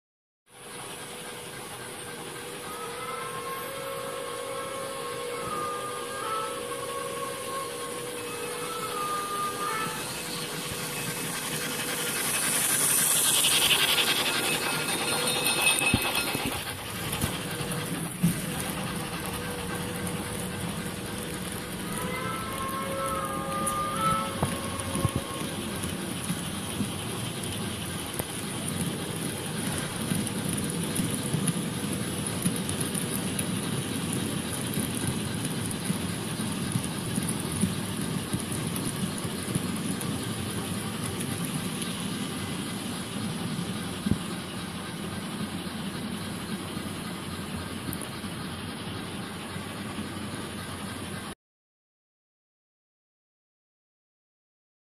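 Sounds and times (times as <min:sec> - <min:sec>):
model train rattling on metal track: 0:00.6 - 0:51.3
steam hiss: 0:00.6 - 0:51.3
multi-tone steam whistle: 0:01.5 - 0:28.8.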